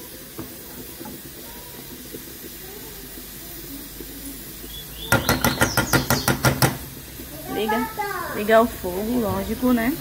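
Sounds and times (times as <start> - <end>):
faint steady hiss: 0.0 - 10.0
spoon knocking on metal pot: 5.1 - 6.9.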